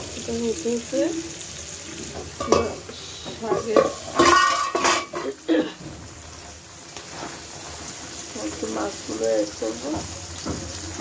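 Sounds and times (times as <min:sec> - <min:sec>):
frying sizzle: 0:00.0 - 0:11.0
pans and utensils clattering: 0:01.9 - 0:06.4, 0:07.0 - 0:11.0
metal clang: 0:03.5 - 0:05.3.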